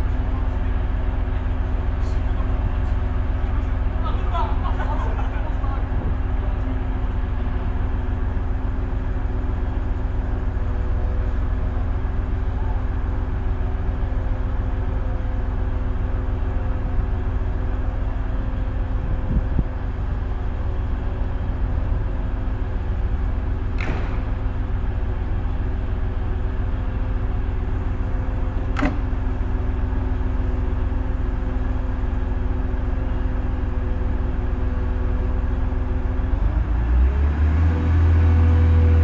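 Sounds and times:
diesel train engine idling: 0:00.0 - 0:37.0
short sharp knocks: 0:23.8 - 0:24.4.

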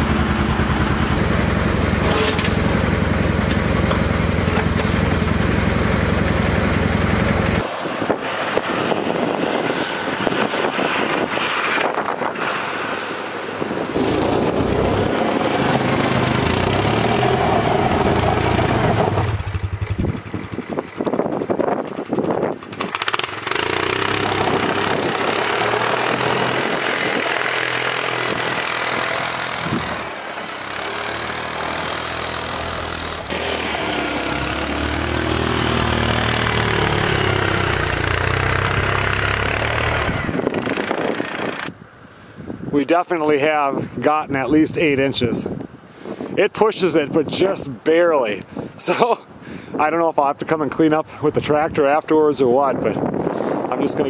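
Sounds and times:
atv engine revving in snow: 0:00.0 - 0:07.7, 0:13.8 - 0:41.7.

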